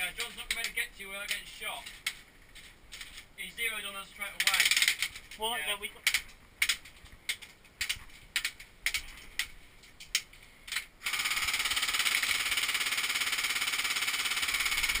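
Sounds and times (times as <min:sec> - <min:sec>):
airsoft full-auto rattle: 0:04.4 - 0:05.4, 0:10.7 - 0:15.0.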